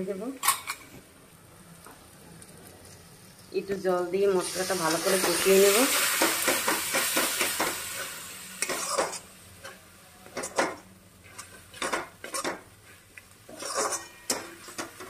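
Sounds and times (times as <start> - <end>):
spatula scraping metal pan: 13.5 - 14.9.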